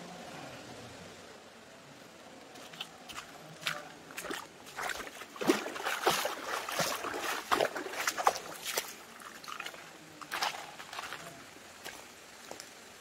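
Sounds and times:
water splashing and sloshing: 2.5 - 12.6.

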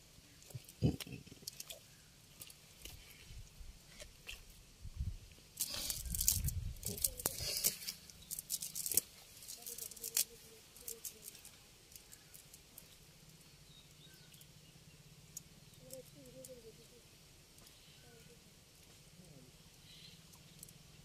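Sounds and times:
fish and wet net handled: 0.4 - 4.7, 5.3 - 13.1
faint crackling of net: 5.3 - 14.5, 15.3 - 21.0.

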